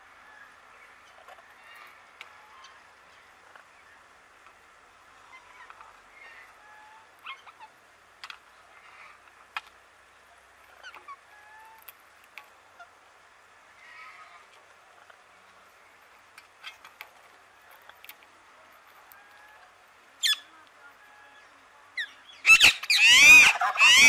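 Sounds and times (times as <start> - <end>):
parakeets chirping and squeaking: 20.2 - 20.4, 22.0 - 24.0
bird whistles: 22.4 - 24.0.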